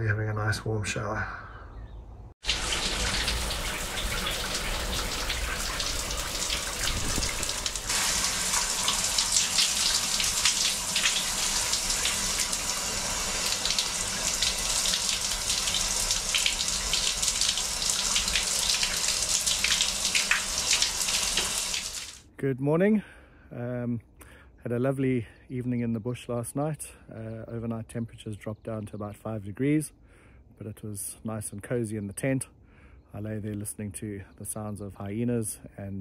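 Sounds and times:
shower spraying water: 0:02.4 - 0:22.2
water spattering on body: 0:02.4 - 0:22.2.

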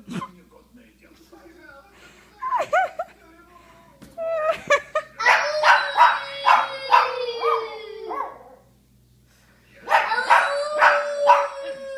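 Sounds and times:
puppy howling and yapping: 0:05.2 - 0:08.6, 0:09.9 - 0:11.9.

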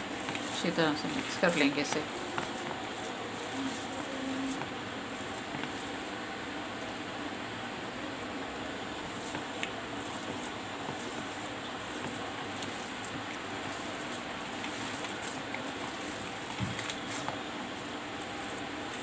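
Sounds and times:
hands squishing and kneading mash: 0:00.0 - 0:19.0
steady hiss: 0:00.0 - 0:19.0.

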